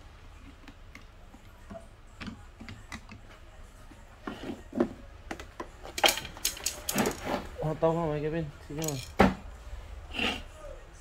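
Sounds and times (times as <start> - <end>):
clicks and knocks of handling parts: 0.4 - 3.4, 5.3 - 7.3, 8.7 - 9.4.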